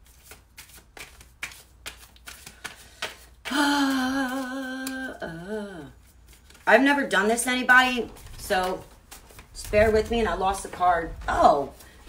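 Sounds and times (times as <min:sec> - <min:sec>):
cards being shuffled: 0:00.0 - 0:05.2, 0:06.0 - 0:06.7, 0:07.8 - 0:10.1.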